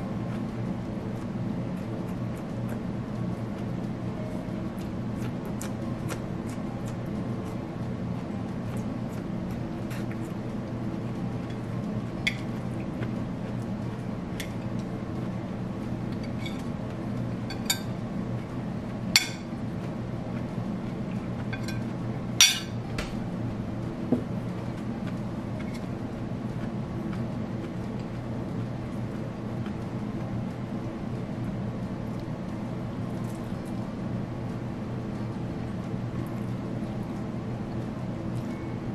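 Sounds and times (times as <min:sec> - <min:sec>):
steady low hum: 0:00.0 - 0:38.9
cutlery clinking against dishes: 0:21.6 - 0:22.8.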